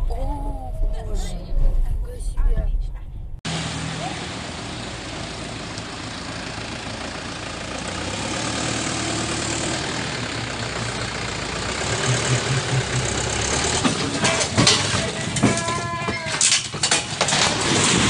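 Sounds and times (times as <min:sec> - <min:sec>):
truck engine running: 0:03.5 - 0:15.5
low pulsing sound: 0:11.8 - 0:13.8.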